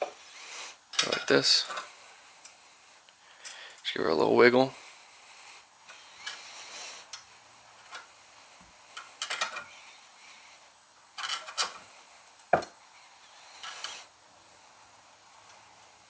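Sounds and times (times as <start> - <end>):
small metal clicks: 9.0 - 9.7, 11.2 - 12.6
metal tool scraping: 13.2 - 14.1.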